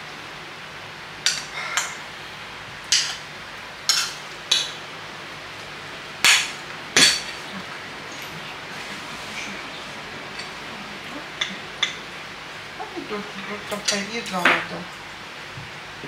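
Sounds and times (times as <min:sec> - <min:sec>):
plates and spoons clinking: 0:03.8 - 0:04.8, 0:06.2 - 0:08.3, 0:09.4 - 0:12.1.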